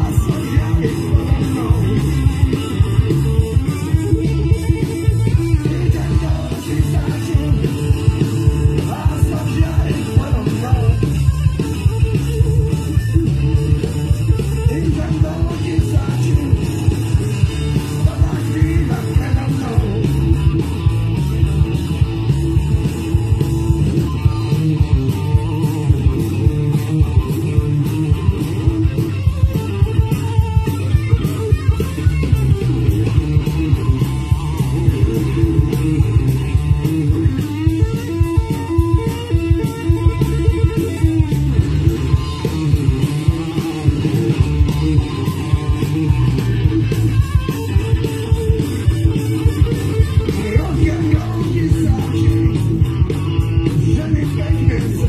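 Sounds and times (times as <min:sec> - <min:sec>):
bass guitar: 0:00.0 - 0:55.0
drum kit beat: 0:00.0 - 0:55.0
electric guitars: 0:00.0 - 0:55.0.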